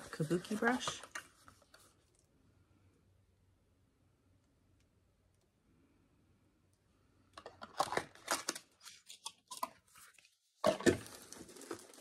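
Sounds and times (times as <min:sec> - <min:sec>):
packaging rustling and crinkling: 0:00.0 - 0:02.2, 0:07.4 - 0:12.0.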